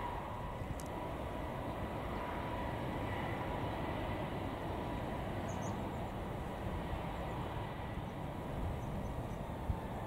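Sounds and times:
jet engine whine: 0:00.0 - 0:10.0
jet engines rumbling: 0:00.0 - 0:10.0.

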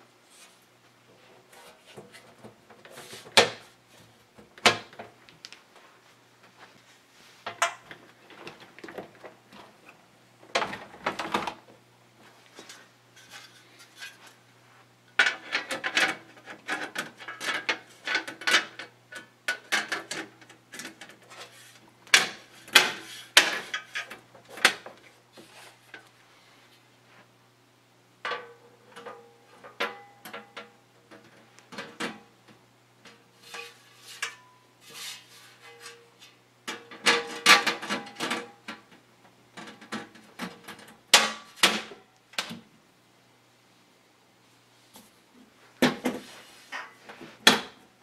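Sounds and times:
panel rubbing and scraping: 0:33.4 - 0:36.1.

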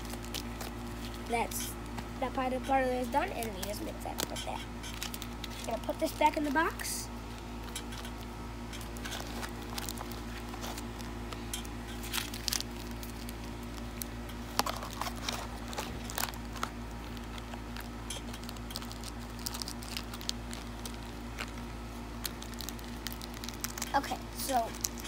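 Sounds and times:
low hum: 0:00.0 - 0:25.0
plastic wrappers crinkling: 0:00.0 - 0:25.0.

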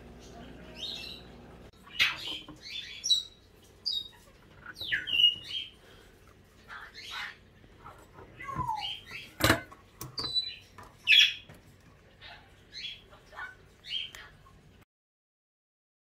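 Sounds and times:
aquarium filter humming: 0:00.0 - 0:14.8
high chirps and squawks: 0:00.2 - 0:05.8, 0:08.2 - 0:09.4, 0:10.2 - 0:11.5.

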